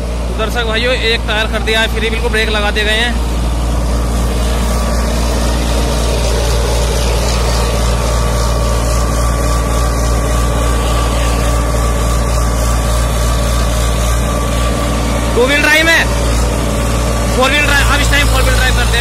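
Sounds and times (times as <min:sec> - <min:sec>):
tractor diesel engine under load: 0:00.0 - 0:19.0.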